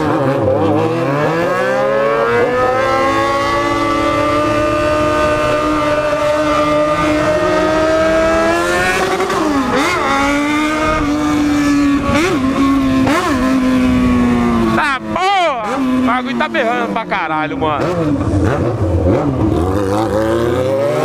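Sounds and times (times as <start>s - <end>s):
motorcycle engine accelerating: 0.0s - 21.0s.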